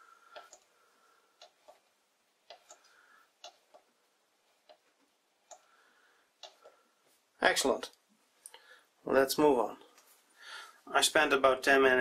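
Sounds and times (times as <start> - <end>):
faint regular ticking: 0.1 - 7.0.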